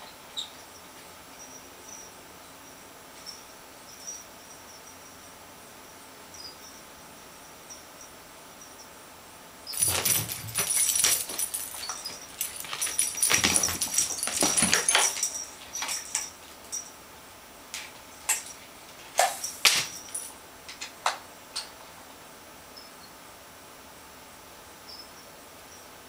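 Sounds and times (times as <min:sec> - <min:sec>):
scuffling: 0:09.7 - 0:16.8, 0:17.8 - 0:20.3
small bell jingling: 0:09.7 - 0:17.0, 0:17.8 - 0:20.4.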